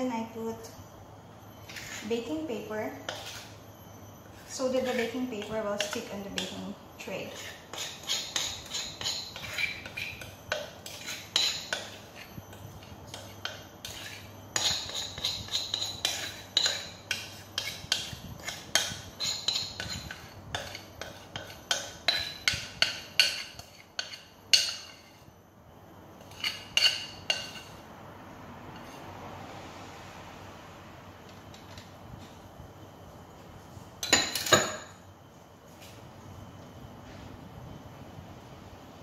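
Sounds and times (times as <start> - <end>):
spatula scraping glass bowl: 1.6 - 3.6, 4.3 - 25.3, 26.2 - 27.8.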